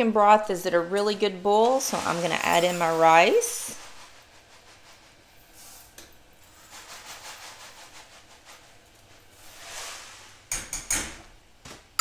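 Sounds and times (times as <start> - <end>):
rice pouring into metal cup: 5.2 - 10.4.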